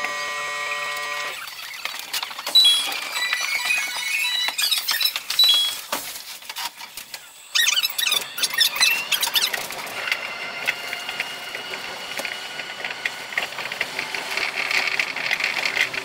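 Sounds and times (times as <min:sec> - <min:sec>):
high-pitched chirps and squeaks: 0:01.4 - 0:05.9, 0:07.4 - 0:09.7
fast clicking chatter: 0:13.0 - 0:16.0.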